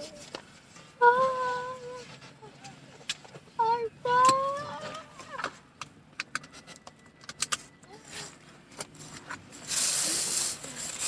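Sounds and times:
loud steady hiss: 9.6s - 11.0s.

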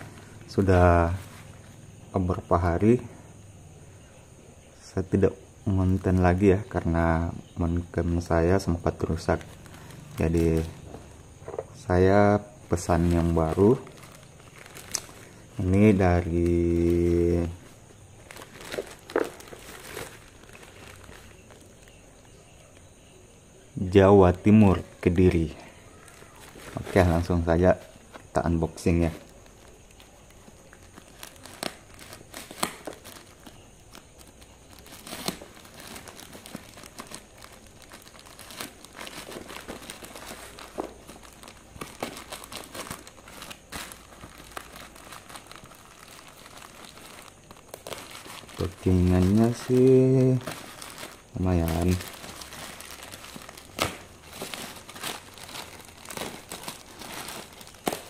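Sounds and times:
sharp plastic crackle: 8.0s - 23.0s, 23.8s - 58.0s
plastic wrapping crinkling and tearing: 8.6s - 12.0s, 12.6s - 22.8s, 23.8s - 58.0s
plastic snapping: 14.8s - 15.2s, 32.4s - 33.2s, 53.6s - 54.5s.

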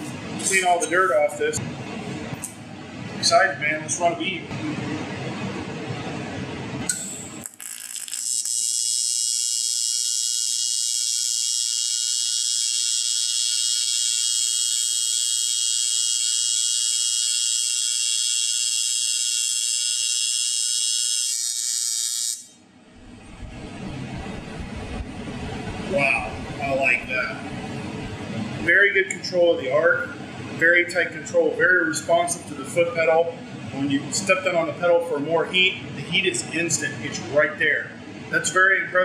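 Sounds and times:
welding arc buzzing: 6.8s - 29.0s.

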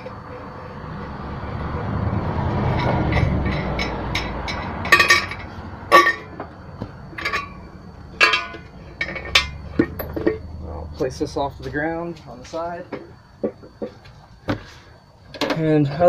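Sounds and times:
metal lid clanking: 2.7s - 6.5s, 7.1s - 7.6s, 8.2s - 10.5s.

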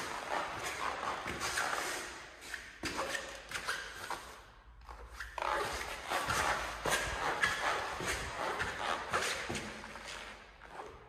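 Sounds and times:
footsteps on hard floor: 5.6s - 10.3s.

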